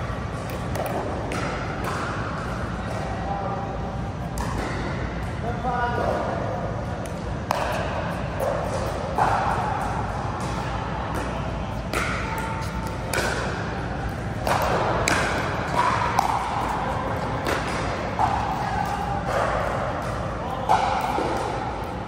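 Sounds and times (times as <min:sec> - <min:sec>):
paddles hitting plastic ball: 0:00.3 - 0:02.3, 0:07.0 - 0:22.0.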